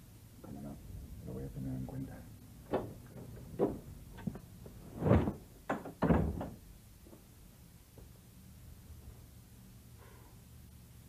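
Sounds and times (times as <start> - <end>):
door thuds and knocks: 2.7 - 3.9, 5.7 - 6.6.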